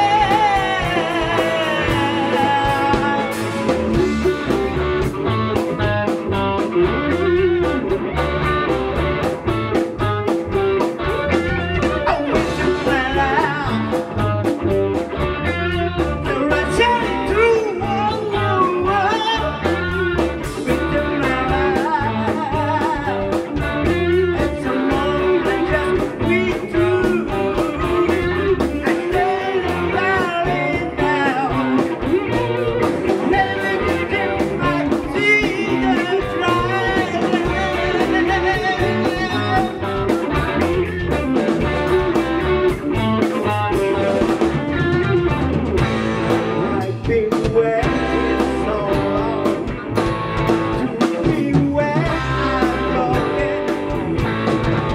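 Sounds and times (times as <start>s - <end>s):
man singing: 0.0s - 4.7s, 11.2s - 14.5s, 15.7s - 41.8s, 43.2s - 45.0s, 46.5s - 49.8s, 50.6s - 54.2s
bass guitar: 0.0s - 54.9s
drum kit keeping a steady beat: 0.0s - 54.9s
electric guitars: 0.0s - 54.9s.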